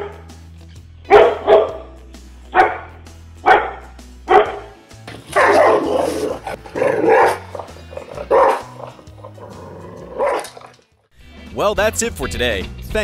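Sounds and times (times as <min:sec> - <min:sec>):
dog barking loudly: 0:01.1 - 0:01.9, 0:02.6 - 0:10.7.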